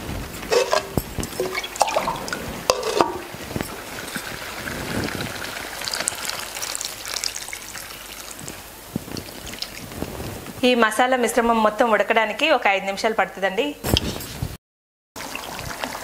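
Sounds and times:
water poured into sizzling paste: 0.5s - 10.4s.

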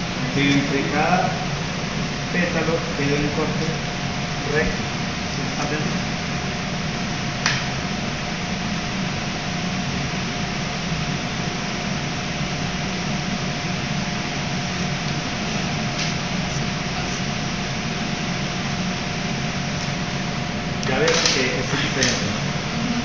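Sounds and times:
faint steady hum: 0.0s - 23.0s
kitchen ventilation air noise: 0.0s - 23.0s
sharp click: 22.0s - 22.2s.

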